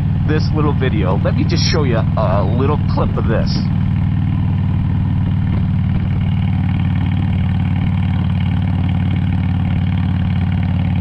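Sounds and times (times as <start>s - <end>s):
motorcycle engine running steadily: 0.0s - 11.0s.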